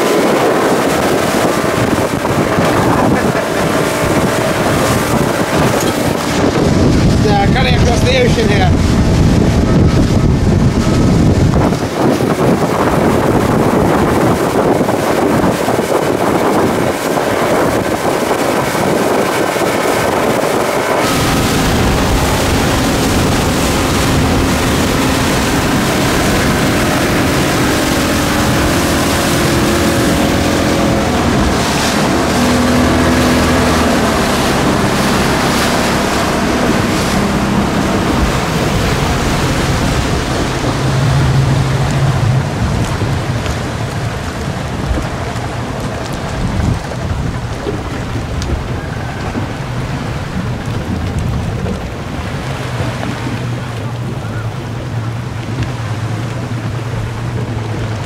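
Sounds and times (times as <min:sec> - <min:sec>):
speedboat engine: 0:00.0 - 0:58.0
water rushing past: 0:00.0 - 0:58.0
wind buffeting microphone: 0:00.0 - 0:58.0.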